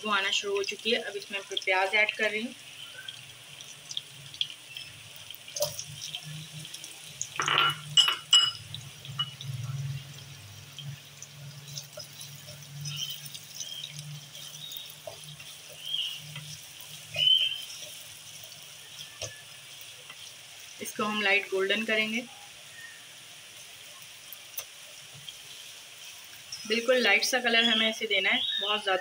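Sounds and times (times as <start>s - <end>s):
onions sizzling in hot oil: 0.0s - 29.0s
steady frying sizzle: 0.0s - 29.0s.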